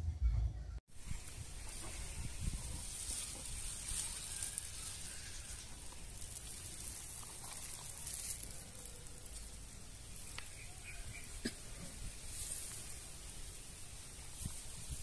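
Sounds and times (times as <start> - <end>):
steady high hiss: 0.9 - 15.0
plastic bag rustling: 1.2 - 10.9.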